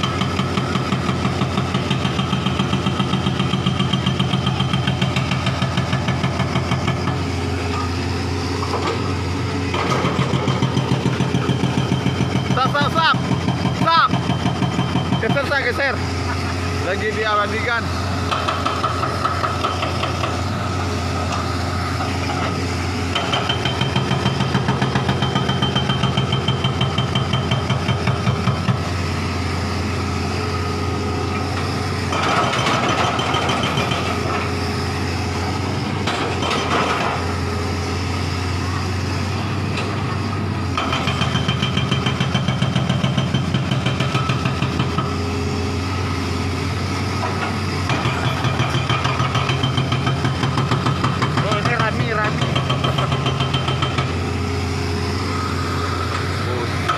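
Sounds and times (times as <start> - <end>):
excavator diesel engine running: 0.0 - 56.9
hydraulic breaker hammering: 18.2 - 29.1, 30.6 - 37.8, 40.7 - 45.3, 47.1 - 56.9.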